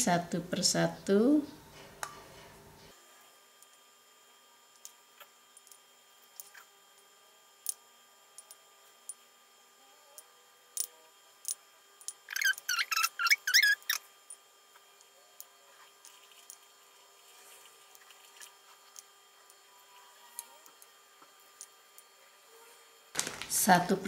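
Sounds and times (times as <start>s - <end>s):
high squeaky chirps: 12.3s - 14.1s.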